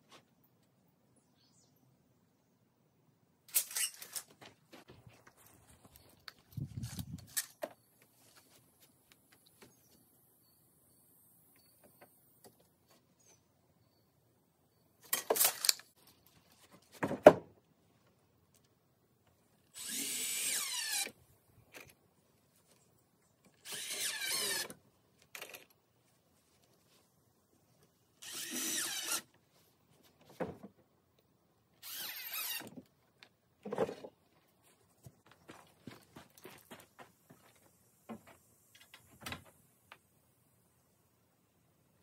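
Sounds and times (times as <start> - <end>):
cordless drill driving into wood: 19.8 - 21.2, 23.6 - 24.8, 28.2 - 29.3, 31.8 - 32.8.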